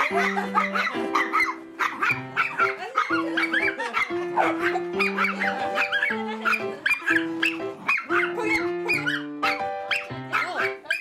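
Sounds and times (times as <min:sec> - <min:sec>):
dog barking: 0:00.0 - 0:11.0.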